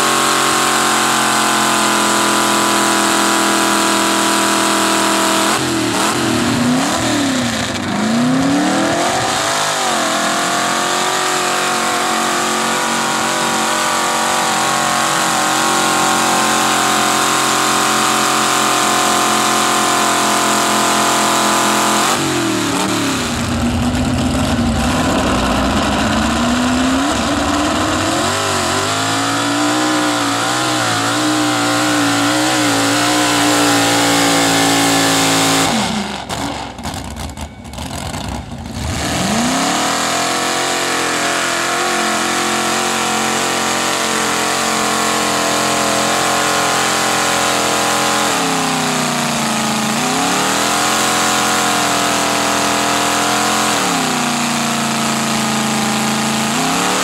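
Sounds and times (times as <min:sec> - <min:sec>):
truck engines revving high: 0:00.0 - 0:57.0.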